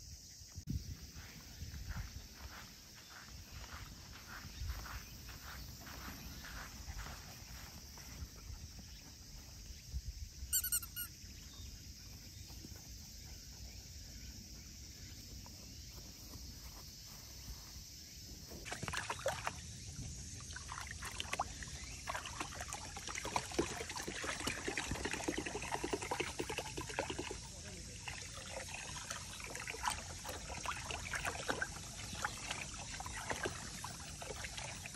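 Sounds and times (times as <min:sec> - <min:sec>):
high-pitched squeak: 0:10.5 - 0:11.1
dog splashing in water: 0:18.6 - 0:34.9
water trickling: 0:18.7 - 0:34.9.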